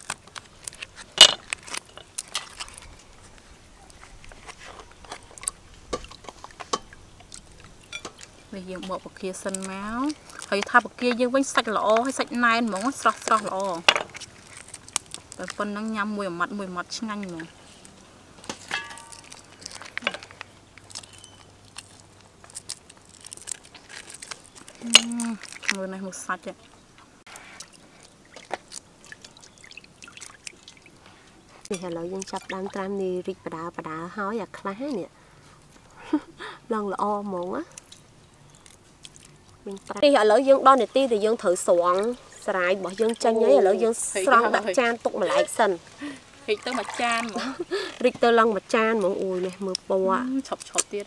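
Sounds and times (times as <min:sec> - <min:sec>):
prawn shells cracking: 0:00.0 - 0:16.2, 0:16.9 - 0:26.0, 0:37.7 - 0:40.2
stainless steel bowl clinking: 0:07.8 - 0:09.9, 0:18.6 - 0:19.4, 0:31.7 - 0:32.9
paper packet crinkling: 0:09.4 - 0:11.1, 0:12.1 - 0:15.8, 0:18.6 - 0:25.9.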